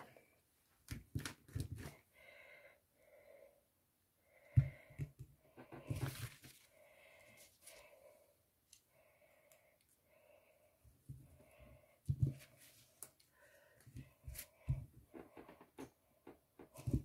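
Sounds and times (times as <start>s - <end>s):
paper rustling: 5.9s - 6.8s.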